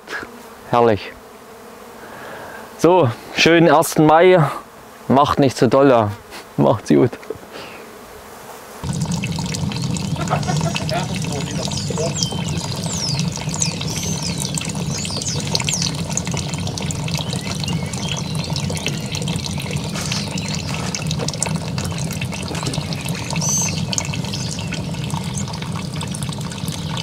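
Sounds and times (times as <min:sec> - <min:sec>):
liquid splashing into bucket: 0:08.8 - 0:27.0
faint high chirps: 0:09.0 - 0:21.0, 0:21.8 - 0:25.6.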